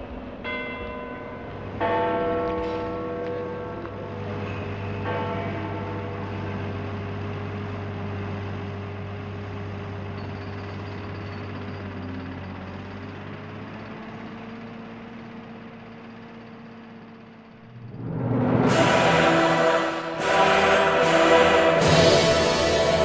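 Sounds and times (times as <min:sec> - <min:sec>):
low droning soundtrack: 0:17.6 - 0:23.0.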